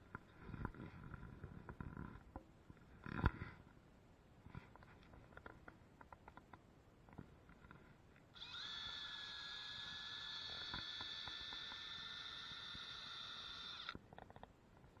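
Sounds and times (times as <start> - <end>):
electric drill motor whining: 8.4 - 14.0.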